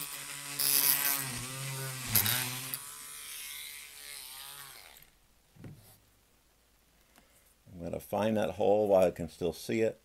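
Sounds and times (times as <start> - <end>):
rotary tool whining: 0.0 - 5.2.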